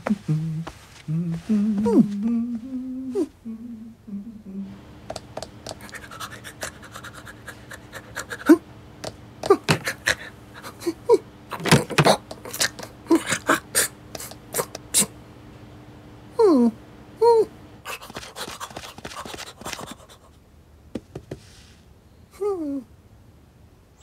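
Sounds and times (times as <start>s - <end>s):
cartoon puppy sniffing and panting: 5.6s - 8.6s, 9.4s - 11.0s, 12.4s - 15.1s, 17.9s - 20.4s
puppy snorts: 12.1s - 15.1s.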